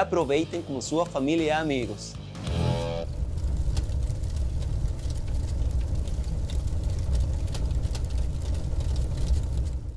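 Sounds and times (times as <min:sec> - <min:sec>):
fire crackles: 0:00.8 - 0:09.9
deep fire rumble: 0:02.4 - 0:09.9.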